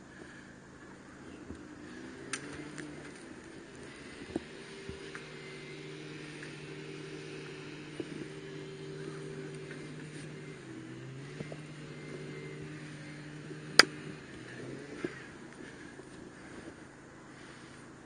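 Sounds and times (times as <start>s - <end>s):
engine hum: 0.0s - 18.0s
faint clicks: 1.3s - 6.8s, 11.2s - 16.8s
sharp crack: 13.6s - 14.2s.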